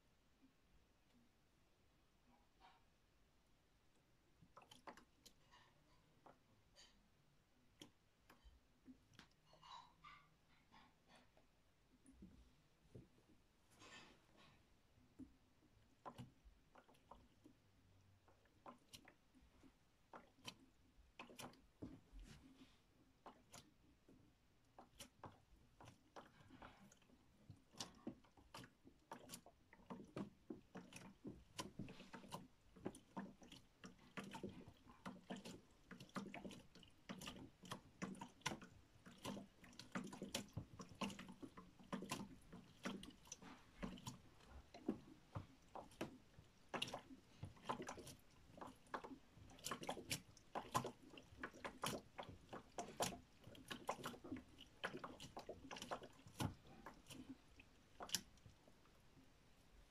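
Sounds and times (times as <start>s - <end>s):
washing machine motor hum: 12.0s - 59.2s.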